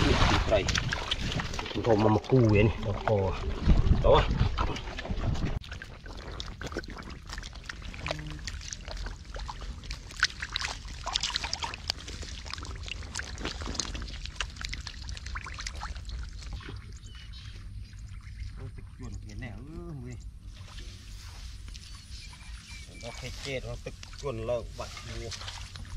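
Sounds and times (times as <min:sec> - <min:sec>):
low wind rumble: 0:00.0 - 0:05.6
fish thrashing on wet mud: 0:00.0 - 0:16.9, 0:25.0 - 0:25.9.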